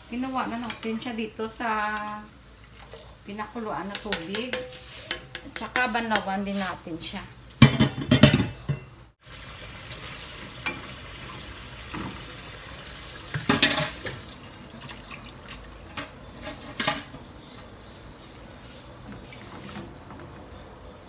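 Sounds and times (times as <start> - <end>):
vegetables sizzling in a pan: 0.0 - 5.1, 9.2 - 14.8
spatula knocking against pan: 3.9 - 6.3.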